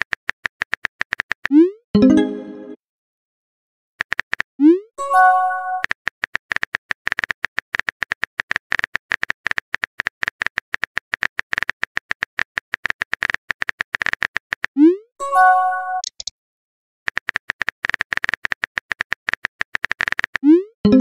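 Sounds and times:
phone keyboard typing clicks: 0:16.0 - 0:16.3.

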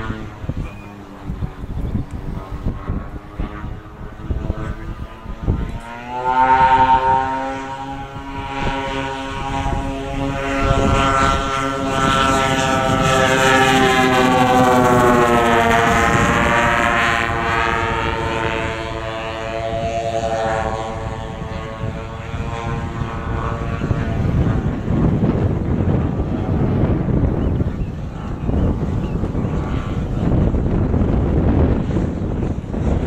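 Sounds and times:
model plane engines droning: 0:00.0 - 0:33.0.

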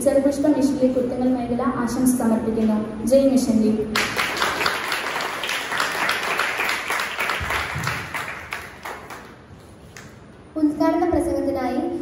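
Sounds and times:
audience clapping: 0:03.9 - 0:10.2.

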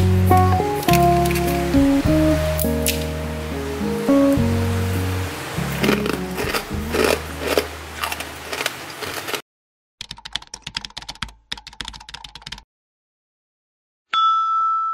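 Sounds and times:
background music: 0:00.0 - 0:08.2
rice crackers crackling as broken: 0:00.8 - 0:01.7, 0:05.8 - 0:09.4
keyboard typing sound effect: 0:10.0 - 0:12.6.

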